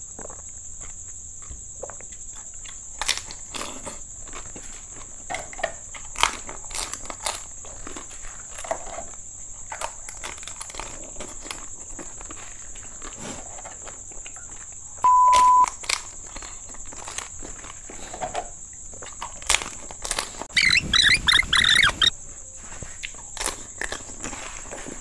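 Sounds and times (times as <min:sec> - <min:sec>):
crisp shells crunching in mouth: 0:02.7 - 0:04.8, 0:06.0 - 0:13.2, 0:15.6 - 0:18.1, 0:19.0 - 0:22.1, 0:23.0 - 0:25.0
faint high-pitched whine: 0:14.4 - 0:15.8
loud steady beep: 0:15.0 - 0:15.7
mouth clicks and smacks: 0:19.0 - 0:22.1.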